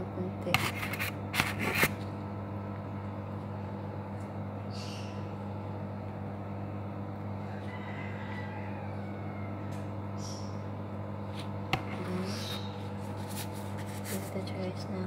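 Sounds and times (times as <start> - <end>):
appliance electrical hum: 0.0 - 15.0
spoon scraping bread: 0.5 - 2.0.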